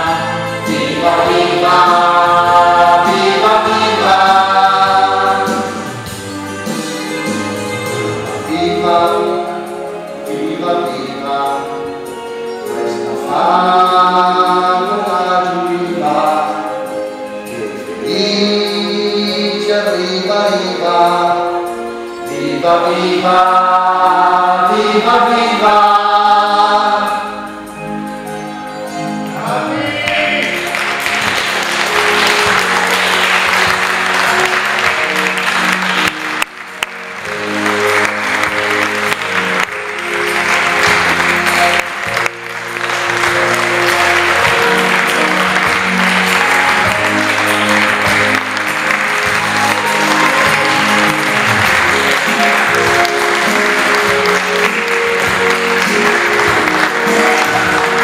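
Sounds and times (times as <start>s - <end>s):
cast singing a chorus: 0.0s - 5.9s
musical accompaniment: 0.0s - 58.0s
audience applause: 30.4s - 58.0s.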